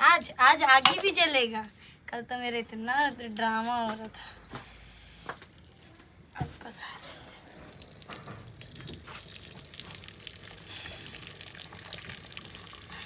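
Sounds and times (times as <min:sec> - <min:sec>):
water pouring and splashing: 0:07.0 - 0:13.0.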